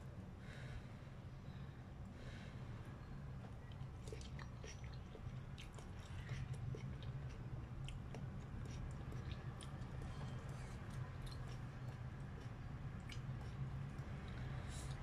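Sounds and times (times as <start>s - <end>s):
person slurping and chewing noodles: 3.8s - 15.0s.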